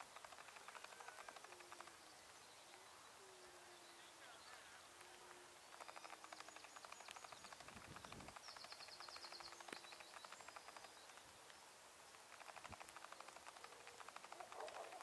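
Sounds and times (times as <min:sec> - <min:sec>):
bird chirping and trilling: 0:05.6 - 0:11.4.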